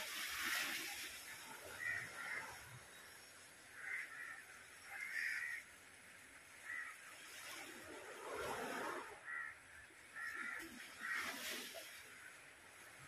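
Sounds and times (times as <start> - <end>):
crows cawing: 3.8 - 5.7, 6.6 - 7.0, 9.3 - 9.6, 10.2 - 11.3.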